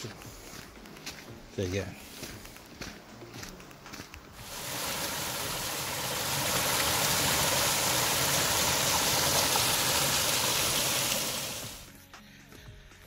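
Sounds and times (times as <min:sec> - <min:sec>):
water splashing over rocks: 0:04.4 - 0:11.9.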